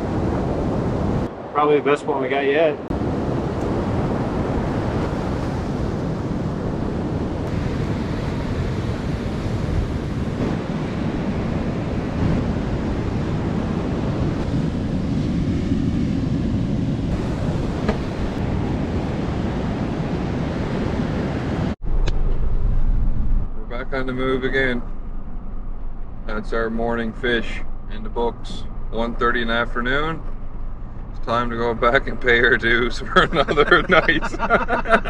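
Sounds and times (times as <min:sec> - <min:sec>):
wind buffeting microphone: 0:00.0 - 0:01.5, 0:02.8 - 0:29.2
ocean surf washing: 0:00.0 - 0:21.8, 0:31.3 - 0:35.0.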